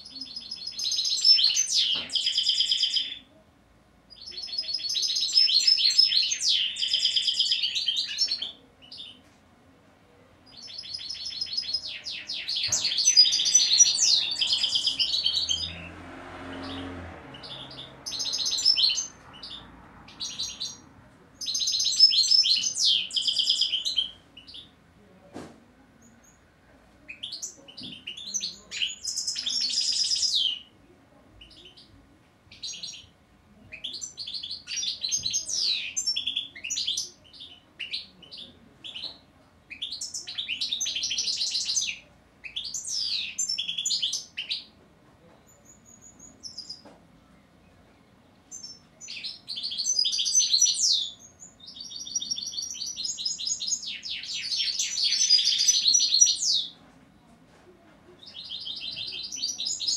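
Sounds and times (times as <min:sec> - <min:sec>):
finch singing high twittering: 0:00.1 - 0:03.2, 0:10.5 - 0:15.9, 0:16.6 - 0:20.8, 0:58.2 - 0:59.9.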